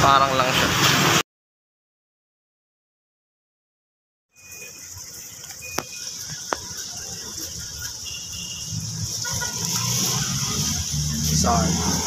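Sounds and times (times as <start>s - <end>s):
steady high-pitched hiss: 4.4s - 12.0s.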